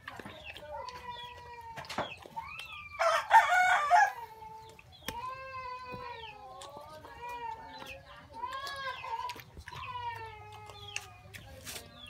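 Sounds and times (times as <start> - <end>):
rooster crowing: 3.0 - 4.2.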